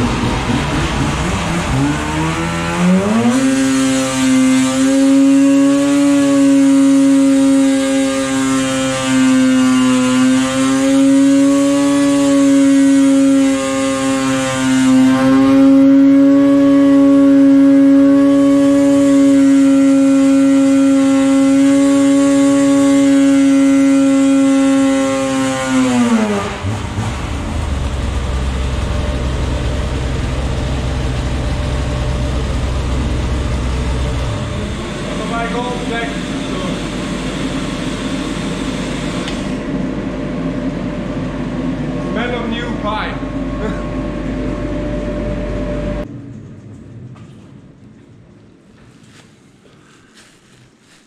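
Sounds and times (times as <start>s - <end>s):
engine low rumble: 0.0s - 3.3s, 26.0s - 51.0s
snowmobile engine high drone: 0.0s - 46.1s.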